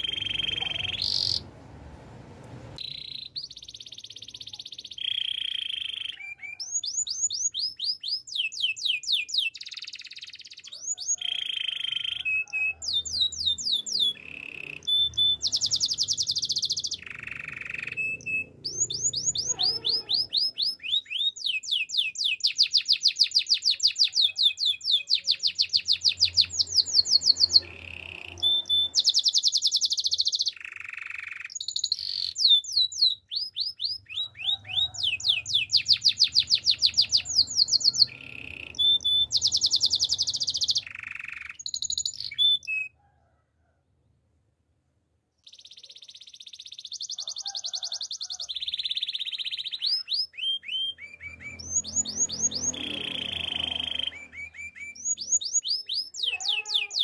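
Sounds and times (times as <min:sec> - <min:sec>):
canary singing trills: 0:00.0 - 0:01.8, 0:02.7 - 0:43.0, 0:45.4 - 0:57.0.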